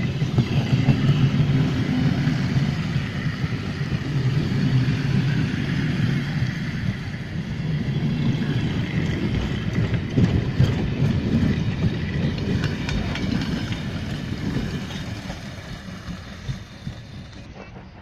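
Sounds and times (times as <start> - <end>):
train wheels rumbling on rails: 0.0 - 18.0
wheels clacking on rails: 0.0 - 18.0.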